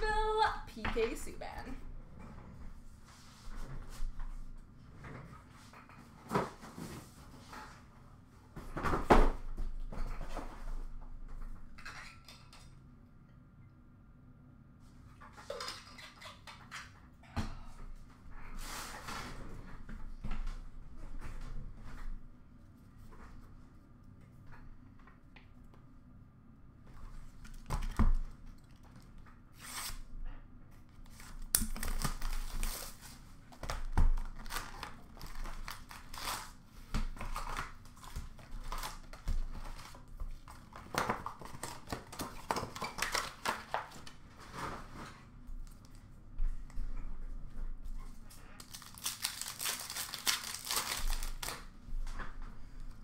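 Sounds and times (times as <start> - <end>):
wrappers tearing and crinkling: 31.1 - 36.6, 37.2 - 40.0, 41.0 - 44.0, 48.6 - 51.7
cards and paper rustling: 48.6 - 51.6.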